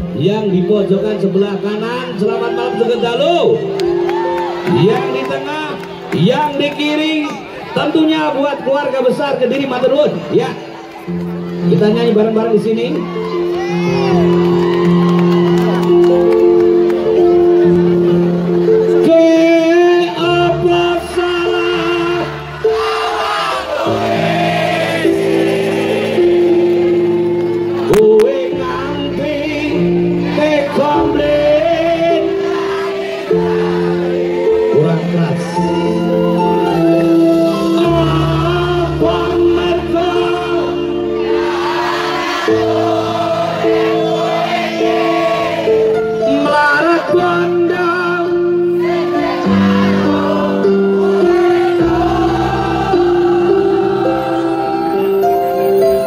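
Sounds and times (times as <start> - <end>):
keyboard chords: 0.0 - 56.0
crowd singing along: 16.4 - 56.0
man singing: 18.9 - 22.5, 27.9 - 32.6, 34.5 - 41.3, 46.2 - 48.6.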